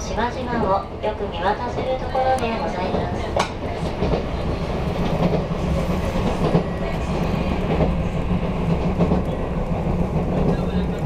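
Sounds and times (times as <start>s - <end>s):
train wheels and motors rumbling: 0.0s - 11.0s.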